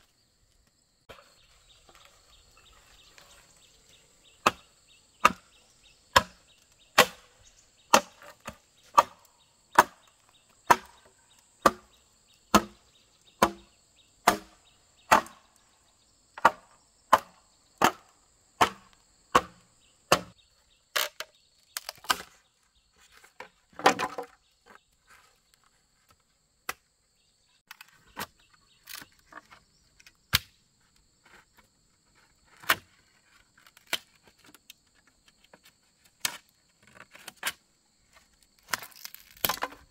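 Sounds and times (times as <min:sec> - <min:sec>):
insects droning: 0:00.0 - 0:39.9
bamboo being chopped: 0:04.4 - 0:15.6, 0:16.4 - 0:22.4, 0:23.2 - 0:24.8, 0:26.1 - 0:26.9, 0:30.3 - 0:30.6, 0:38.6 - 0:39.9
bamboo splintering crackle: 0:06.1 - 0:12.8, 0:14.2 - 0:15.4, 0:16.4 - 0:22.4, 0:23.2 - 0:26.9, 0:27.7 - 0:31.5, 0:32.2 - 0:37.6, 0:38.2 - 0:39.9.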